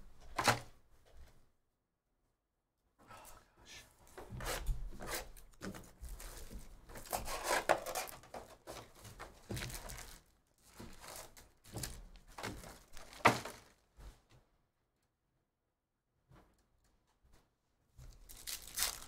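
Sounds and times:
foil packs handled: 5.6s - 13.8s, 18.1s - 19.0s
cellophane wrap crinkling and tearing: 6.1s - 13.8s, 18.0s - 19.0s.

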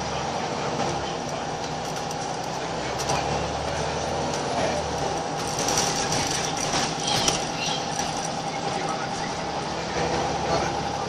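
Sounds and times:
bus diesel engine running: 0.0s - 11.0s
road noise: 0.0s - 11.0s.

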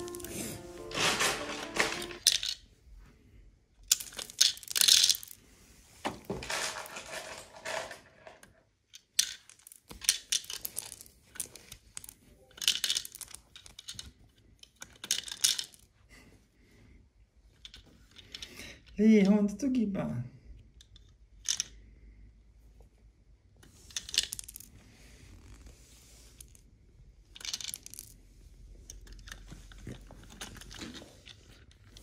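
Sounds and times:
toy pieces clattering into wagons: 0.0s - 2.6s, 3.8s - 5.4s, 6.2s - 15.9s, 17.6s - 19.0s, 20.8s - 21.9s, 23.7s - 24.8s, 27.3s - 32.0s.

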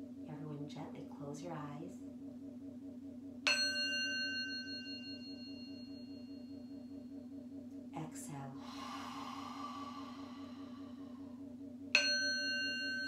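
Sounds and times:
steady low hum: 0.0s - 13.0s
singing bowl ringing: 2.8s - 7.6s, 9.2s - 13.0s.

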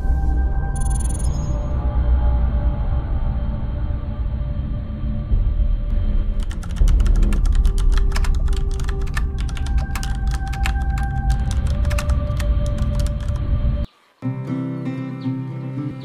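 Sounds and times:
deep droning music: 0.0s - 16.0s
keyboard typing clicks: 6.4s - 13.4s.

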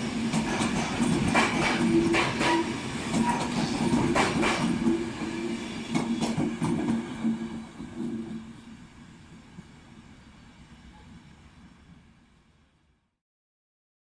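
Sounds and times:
train wheels clicking over rail joints: 0.0s - 8.5s.

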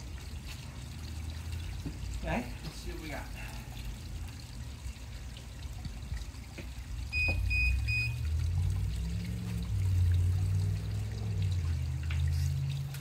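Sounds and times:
short electronic beeps: 7.1s - 8.2s.

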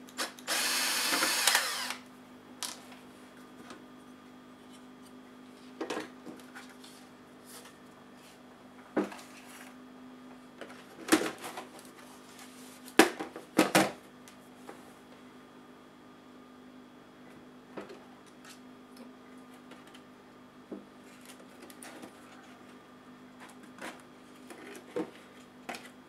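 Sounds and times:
electric screwdriver whirring: 0.2s - 2.0s.

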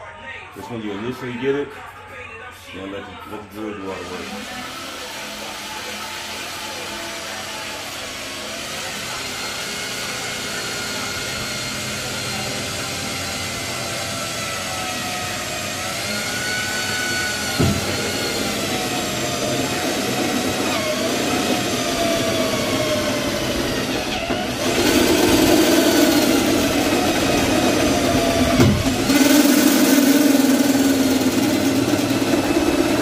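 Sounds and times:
electric drill cutting metal: 3.6s - 33.0s
knock: 17.6s - 17.9s.

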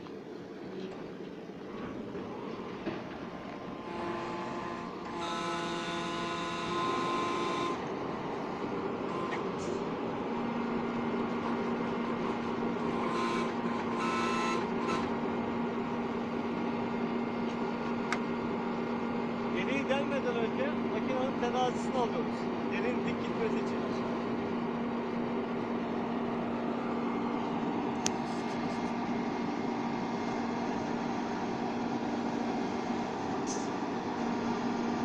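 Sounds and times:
steady hum: 0.0s - 35.0s
hydraulic drill rig running: 1.6s - 35.0s
whining tones: 3.7s - 16.2s.

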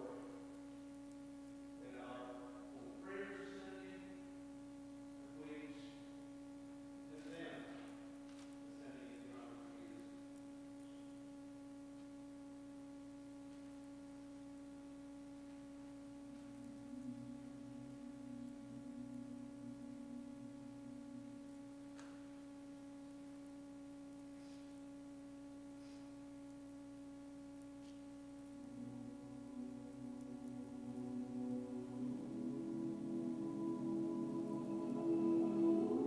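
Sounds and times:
lower humming note: 12.6s - 24.3s, 27.0s - 36.0s
choir humming a drone note: 16.4s - 22.3s, 28.6s - 36.0s.

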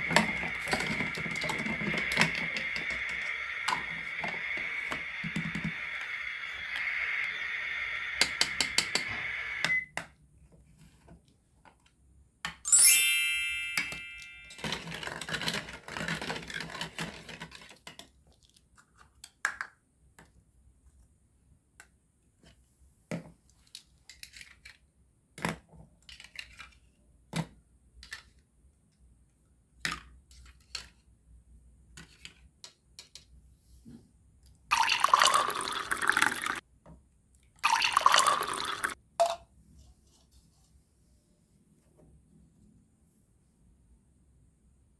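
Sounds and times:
plastic toy pieces clattering: 14.5s - 18.5s, 26.0s - 26.9s
liquid pouring into bowl: 34.7s - 36.6s, 37.6s - 39.0s.

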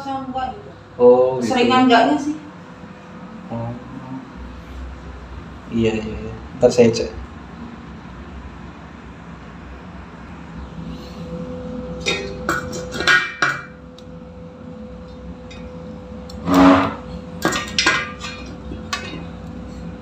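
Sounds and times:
metal clatter: 12.0s - 13.7s, 16.4s - 19.3s.

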